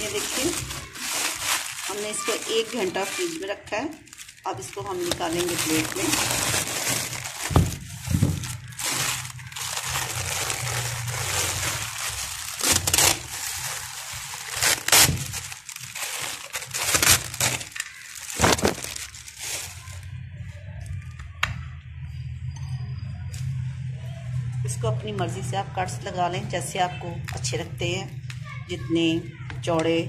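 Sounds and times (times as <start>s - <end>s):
plastic sheet crinkling: 0.0s - 20.2s.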